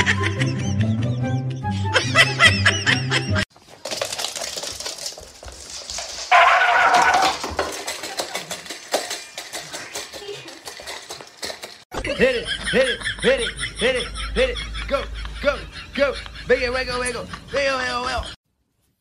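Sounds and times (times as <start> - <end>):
music: 0.0 - 3.4
dog at a metal bowl: 3.8 - 11.8.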